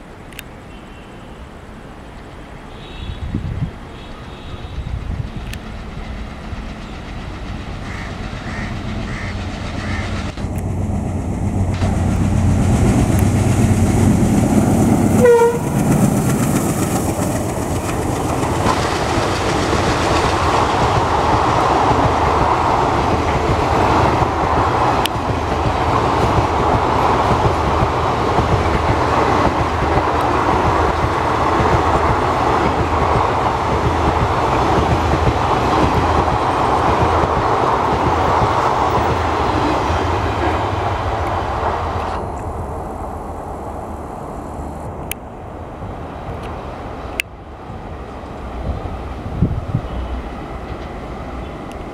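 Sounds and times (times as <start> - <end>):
diesel locomotive engine: 0.0 - 51.9
train horn blast: 2.7 - 3.4, 4.0 - 5.0, 15.1 - 15.9
train wheels clattering on rails: 4.8 - 42.5.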